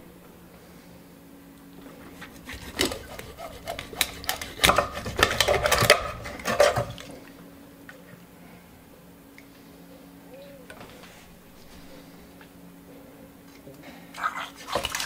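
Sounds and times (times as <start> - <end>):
knife sawing through fish bone: 2.1 - 7.1.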